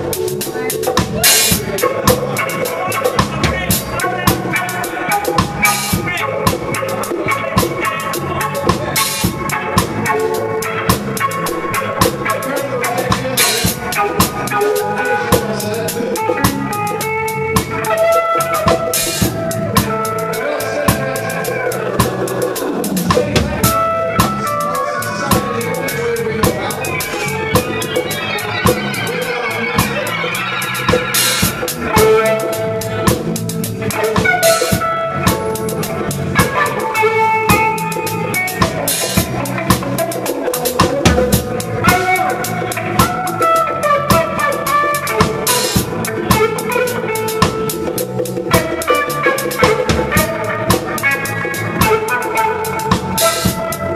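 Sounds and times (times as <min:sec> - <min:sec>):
drums and cymbals: 0:00.0 - 0:53.9
reggae band playing live: 0:00.0 - 0:53.9
sliding melodic line: 0:23.3 - 0:43.4.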